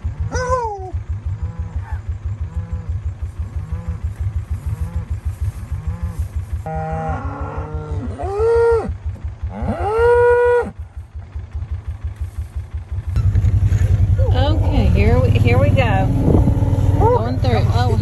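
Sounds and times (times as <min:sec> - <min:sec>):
cows mooing: 0:00.0 - 0:10.8, 0:13.7 - 0:18.0
low pulsing rumble: 0:00.0 - 0:18.0.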